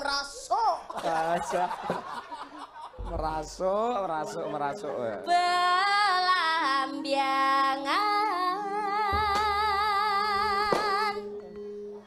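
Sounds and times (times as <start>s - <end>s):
low held accompaniment notes: 3.0s - 12.0s
woman singing through microphone: 4.5s - 11.4s.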